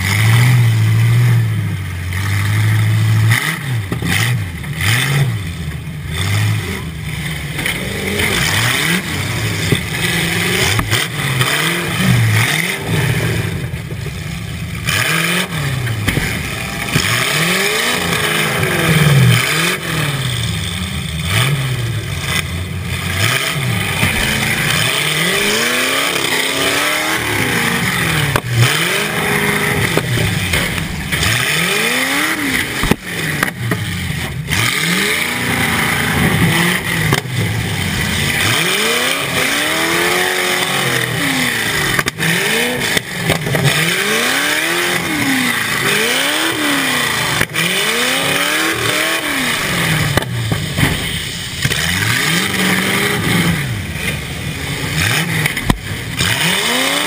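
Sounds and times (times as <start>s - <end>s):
car engine revving: 0.0s - 57.0s
car impact bangs: 15.9s - 17.2s, 23.8s - 25.7s, 29.4s - 34.4s, 50.1s - 51.9s.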